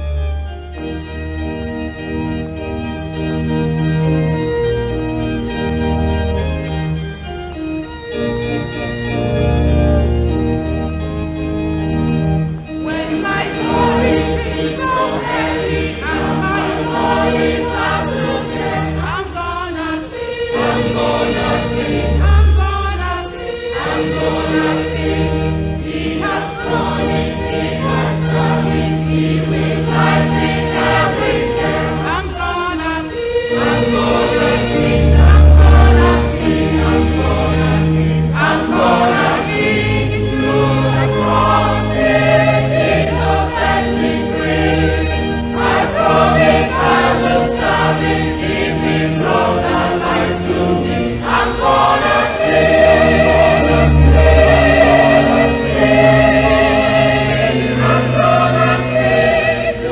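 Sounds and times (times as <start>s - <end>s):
organ chords: 0.0s - 59.9s
people singing gospel: 12.8s - 59.9s.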